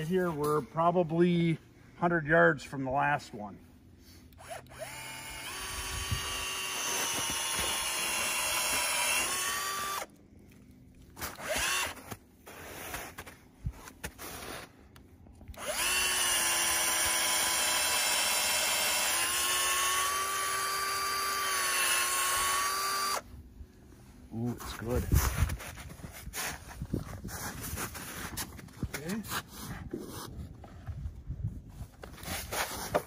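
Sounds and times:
cordless drill motor whining: 4.2s - 10.6s, 11.3s - 12.0s, 15.4s - 23.4s.

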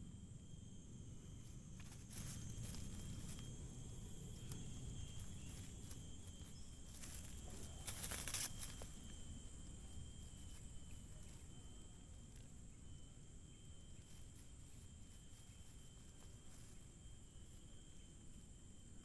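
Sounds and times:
insects droning: 0.0s - 19.0s
rustling in dry leaves: 1.2s - 12.5s, 13.9s - 18.3s.

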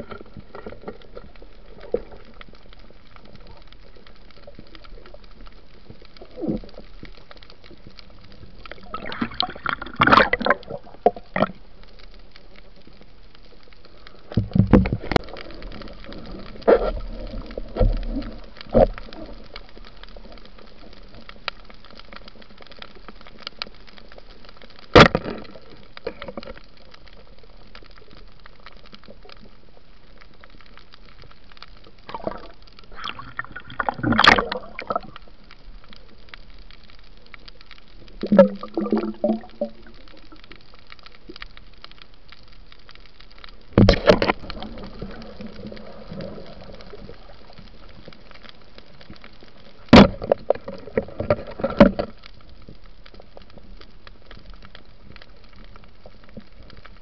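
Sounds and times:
gurgling bubbles: 8.7s - 11.7s, 32.0s - 35.3s, 38.1s - 40.4s, 43.8s - 47.9s.

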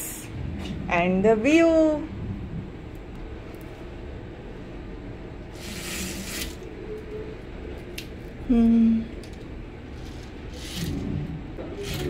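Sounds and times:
fabric blind rustling and scraping: 9.9s - 11.1s.

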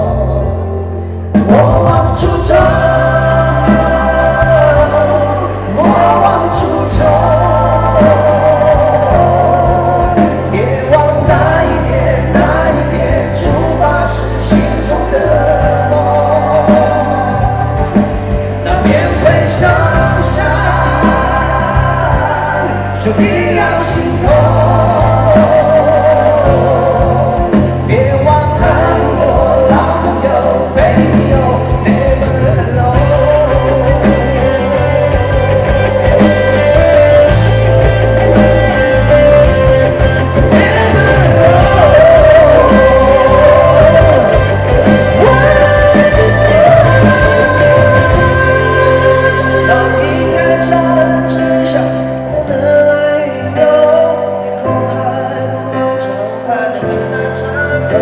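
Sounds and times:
full band playing: 0.0s - 58.0s
men singing into microphones: 0.0s - 58.0s.

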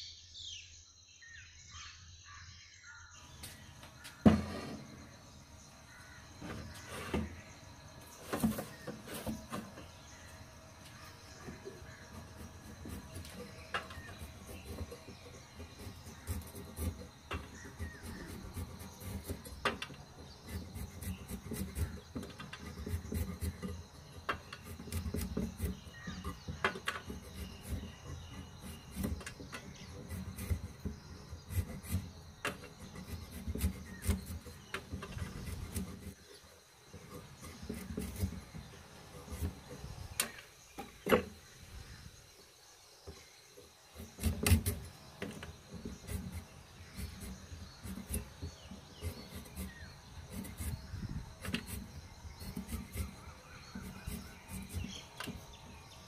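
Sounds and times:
fruit skin scraped on blade: 10.9s - 40.4s, 43.9s - 55.6s.

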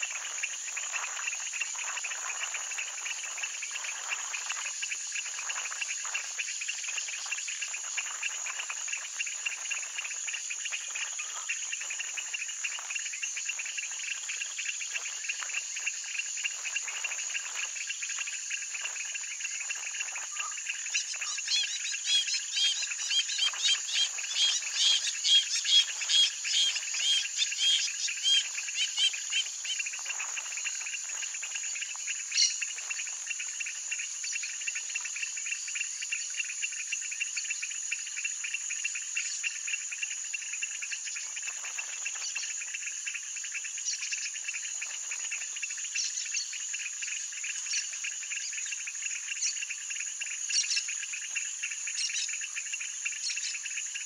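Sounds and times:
crickets and insects chorus: 0.0s - 54.0s
rapid pulsed insect calls: 0.0s - 54.0s.

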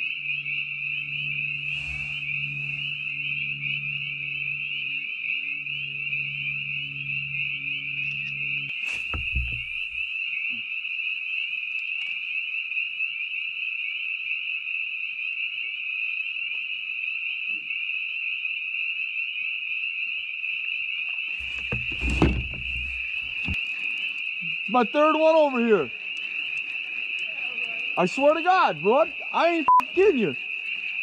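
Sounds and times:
frogs peeping: 0.0s - 10.6s, 21.4s - 31.0s
knocks and low thumps: 9.1s - 10.0s, 21.4s - 23.6s.

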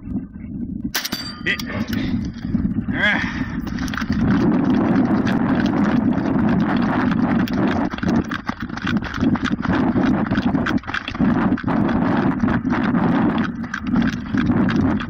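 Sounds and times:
wind buffeting microphone: 0.0s - 15.0s
running footsteps on gravel: 1.4s - 15.0s.

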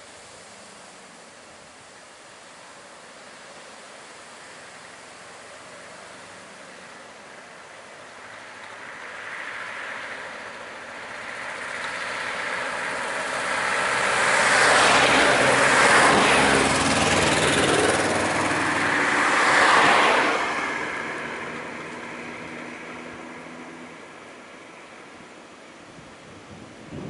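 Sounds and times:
vehicles driving past: 5.4s - 25.9s.

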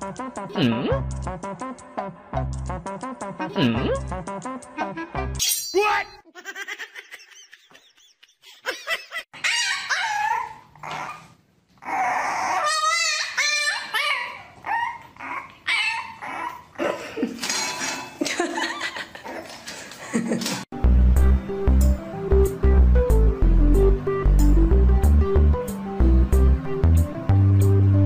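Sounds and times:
puppy whining and yipping: 9.4s - 16.8s.

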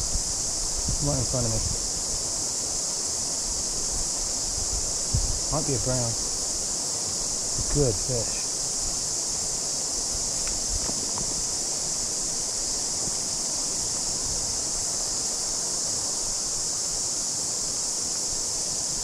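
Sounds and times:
cicadas buzzing: 0.0s - 19.0s.

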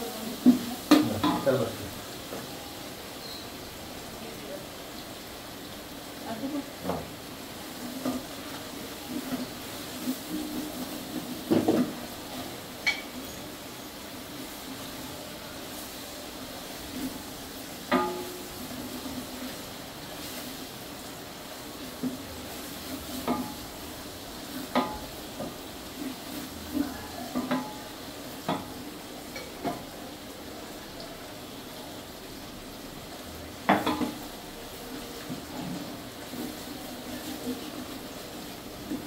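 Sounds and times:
onions sizzling in oil: 0.0s - 39.0s
wooden spatula knocking pot: 0.4s - 1.5s.

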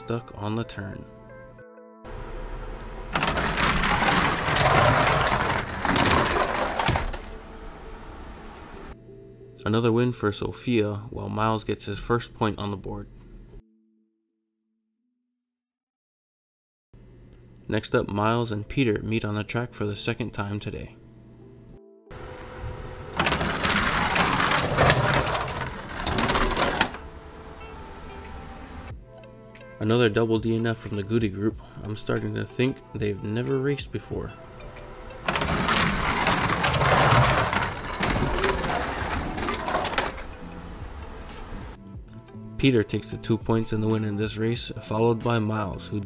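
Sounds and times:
toy race cars clattering on track: 3.1s - 7.3s, 23.2s - 27.0s, 35.2s - 40.4s.

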